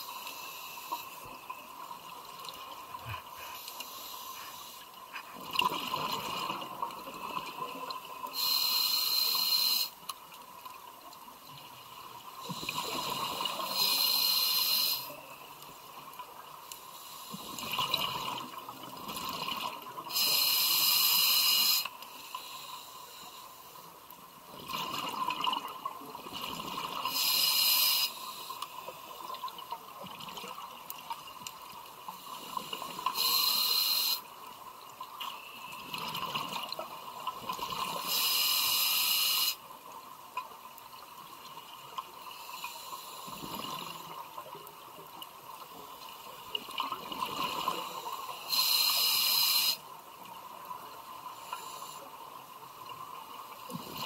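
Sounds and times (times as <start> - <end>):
regulator inhalation hiss: 0.0 - 1.4, 3.4 - 4.9, 8.3 - 10.0, 12.6 - 15.2, 20.1 - 23.8, 27.1 - 28.8, 32.1 - 34.3, 38.0 - 39.6, 48.3 - 49.8.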